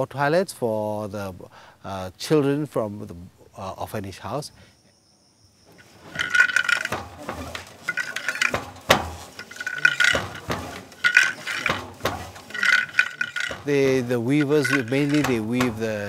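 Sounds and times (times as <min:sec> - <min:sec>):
wooden loom clacking: 0:05.7 - 0:16.0.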